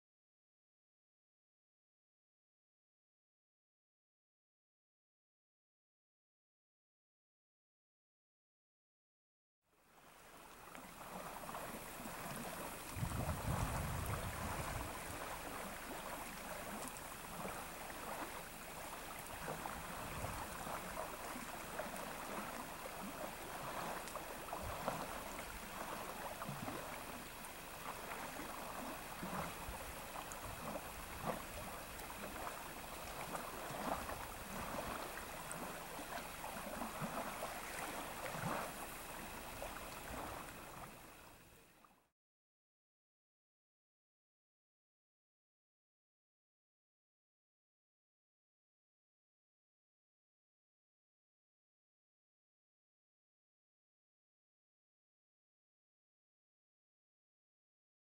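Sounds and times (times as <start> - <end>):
river rushing: 10.2 - 41.1.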